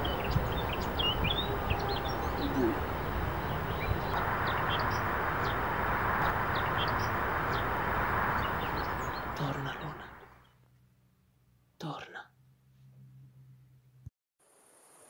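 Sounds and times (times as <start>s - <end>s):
steady background hiss: 0.0s - 10.4s
small birds chirping: 0.0s - 10.6s.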